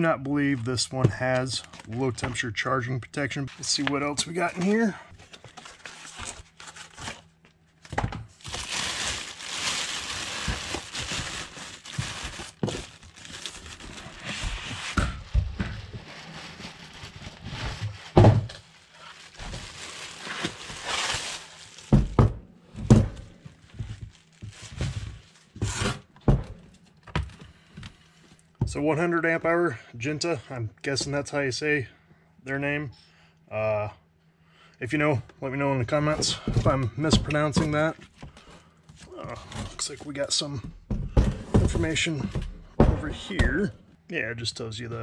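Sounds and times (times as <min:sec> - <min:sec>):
plastic wrapping rustling and tearing: 0:00.0 - 0:02.2, 0:03.5 - 0:22.2, 0:23.2 - 0:26.0.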